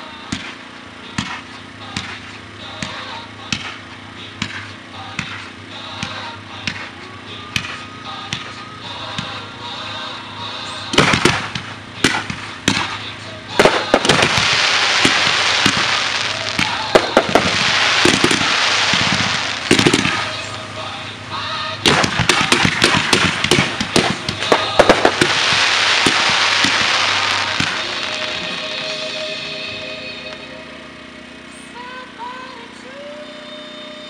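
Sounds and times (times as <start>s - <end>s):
faint music: 0.0s - 34.0s
fireworks bangs: 0.3s - 7.0s, 10.8s - 30.9s
hiss of firework comets: 10.8s - 31.7s.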